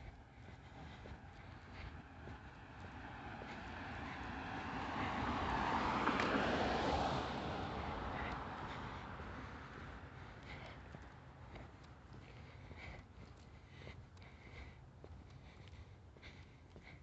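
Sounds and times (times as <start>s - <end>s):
car driving past: 2.0s - 10.9s.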